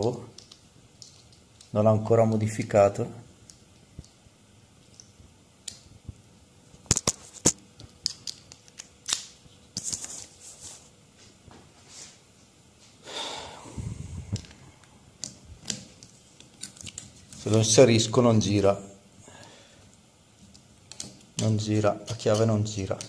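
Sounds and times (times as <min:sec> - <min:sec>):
rustling scrape: 0:09.8 - 0:11.0, 0:11.8 - 0:12.2.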